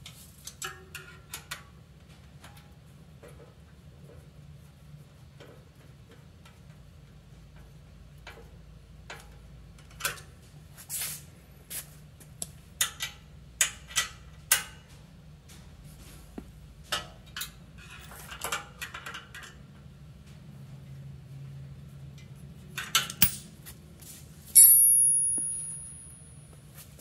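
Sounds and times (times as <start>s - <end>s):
wrench clicking on metal bolts: 22.8s - 23.4s.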